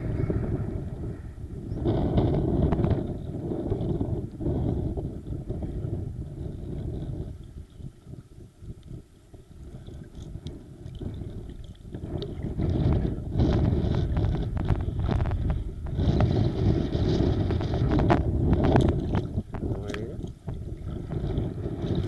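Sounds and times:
wind buffeting microphone: 0:00.0 - 0:22.0
water sloshing and splashing: 0:06.6 - 0:16.2, 0:16.9 - 0:22.0.

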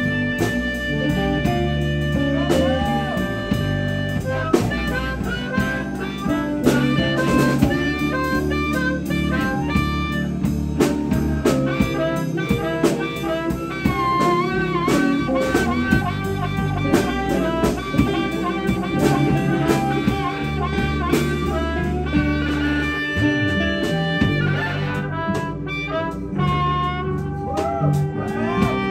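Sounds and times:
amplified harmonica solo: 0:00.0 - 0:28.9
bass guitar: 0:00.0 - 0:28.9
drum kit steady beat: 0:00.0 - 0:28.9
electric guitar: 0:00.0 - 0:28.9.

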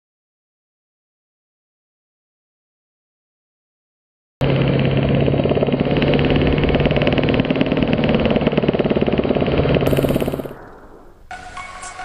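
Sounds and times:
helicopter engine and rotor drone: 0:04.4 - 0:11.4.

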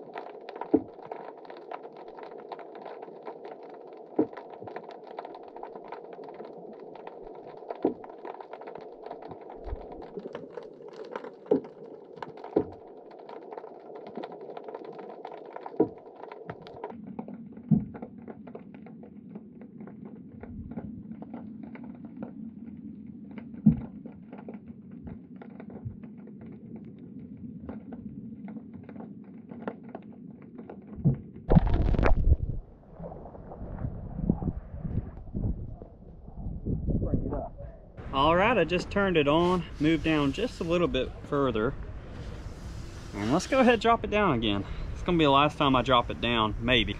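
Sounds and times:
sharp underwater clicks: 0:00.0 - 0:32.6
muffled underwater hiss: 0:38.0 - 0:46.9
water rushing: 0:38.0 - 0:46.9.

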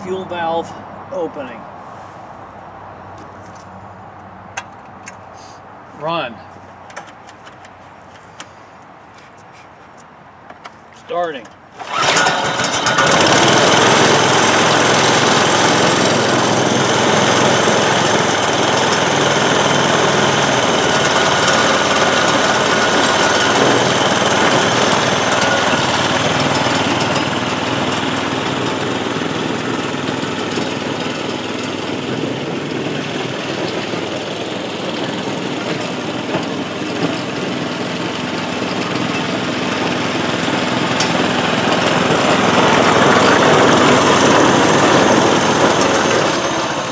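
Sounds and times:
small gas engine running: 0:11.8 - 0:46.9.

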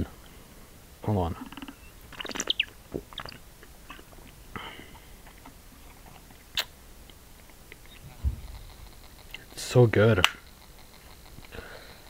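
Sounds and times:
person sipping and swallowing: 0:01.5 - 0:06.7.

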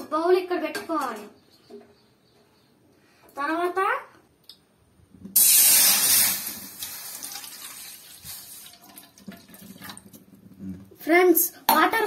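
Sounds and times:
water pouring into metal pan: 0:05.4 - 0:10.2.

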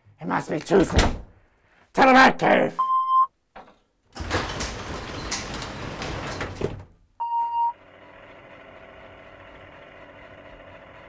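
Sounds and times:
elevator door sliding shut: 0:04.2 - 0:06.9
short beep: 0:07.2 - 0:07.8.

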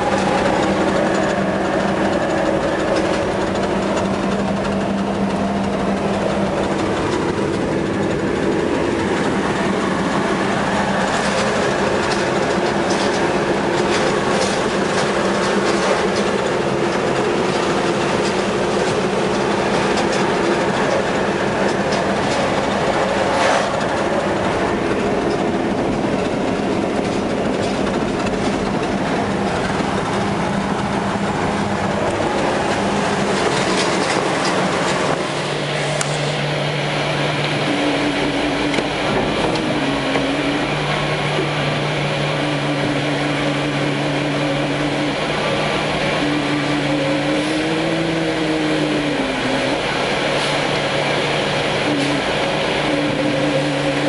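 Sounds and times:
cab rattling and clicking: 0:00.0 - 0:36.2
truck diesel engine drone: 0:00.0 - 0:54.0.

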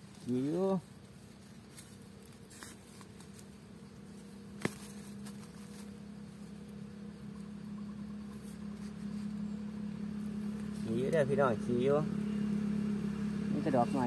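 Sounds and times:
tool scraping soil: 0:00.0 - 0:03.6
steady low hum: 0:00.0 - 0:14.0.

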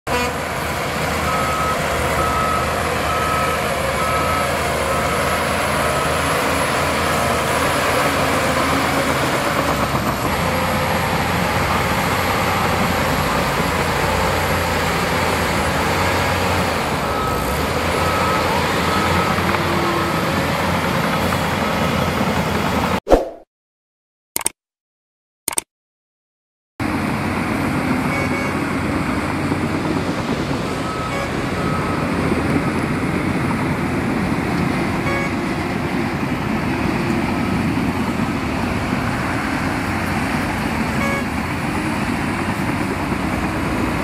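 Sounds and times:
bulldozer diesel engine running: 0:00.1 - 0:23.0, 0:26.8 - 0:44.0
reversing alarm beeping: 0:01.2 - 0:06.6.

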